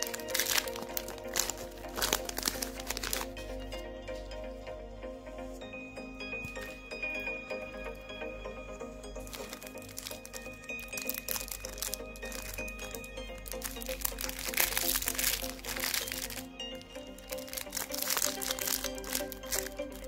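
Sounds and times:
plastic wrapper crinkling: 0:00.0 - 0:03.6, 0:09.2 - 0:20.0
background music: 0:00.0 - 0:20.0.

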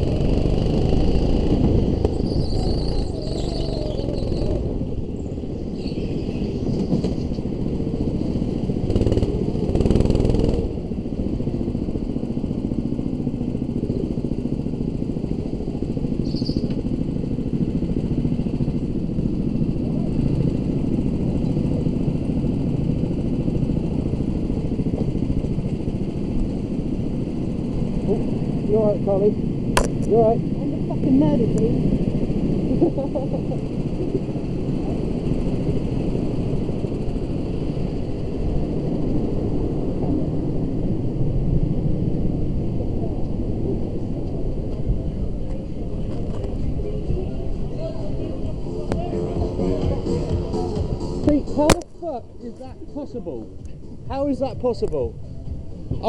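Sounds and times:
go-kart engine rumble with rattling: 0:00.0 - 0:56.0.

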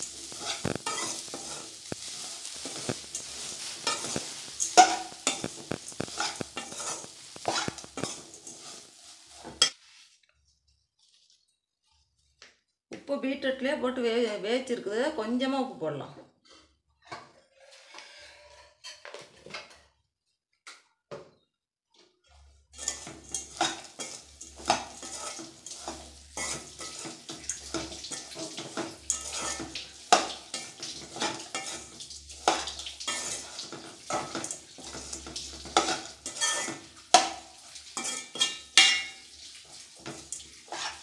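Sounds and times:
metal spoon scraping a pan: 0:00.0 - 0:09.8, 0:16.5 - 0:19.3, 0:22.3 - 0:41.0.

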